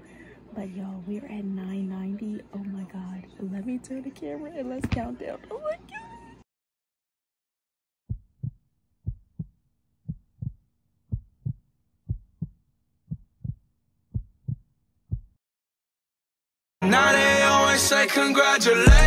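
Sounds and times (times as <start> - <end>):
heartbeat double thump: 8.1 - 15.4.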